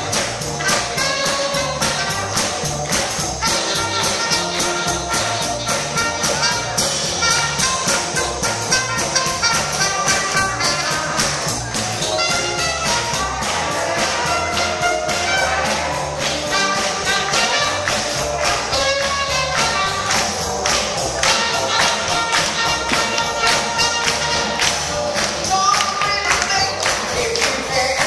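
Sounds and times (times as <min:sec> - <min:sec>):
brass horns: 0:00.0 - 0:28.0
live band playing dance music: 0:00.0 - 0:28.0
steady drum beat: 0:00.0 - 0:28.0.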